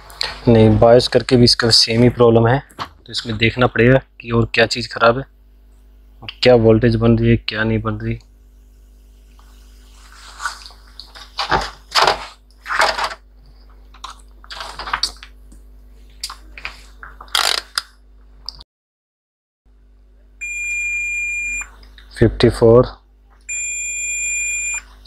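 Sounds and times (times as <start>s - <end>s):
steady low hum: 0.0s - 18.6s, 19.7s - 25.0s
handling rustles and knocks: 10.0s - 13.3s
multimeter continuity beep: 20.4s - 21.7s, 23.5s - 24.9s.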